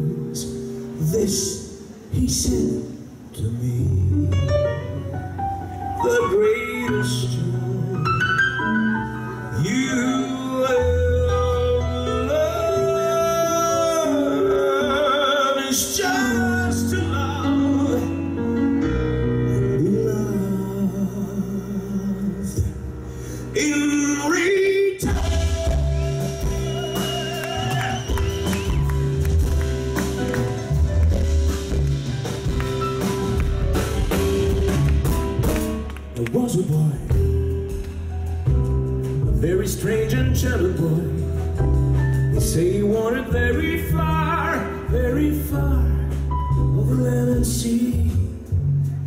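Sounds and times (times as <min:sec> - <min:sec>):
man singing: 0:00.0 - 0:05.2, 0:05.9 - 0:28.1, 0:36.2 - 0:37.6, 0:39.2 - 0:49.0
jazz band playing: 0:03.7 - 0:49.0
upright double bass: 0:25.0 - 0:49.0.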